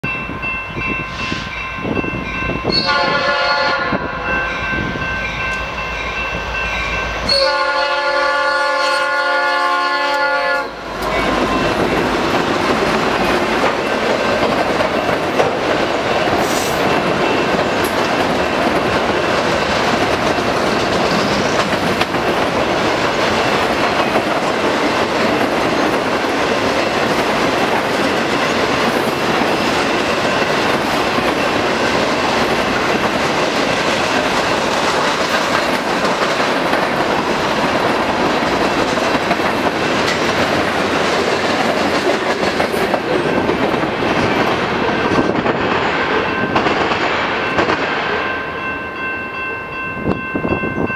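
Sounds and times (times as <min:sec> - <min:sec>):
train horn blast: 0:02.7 - 0:04.3, 0:07.2 - 0:11.3
freight cars rumbling and clacking: 0:10.8 - 0:48.1.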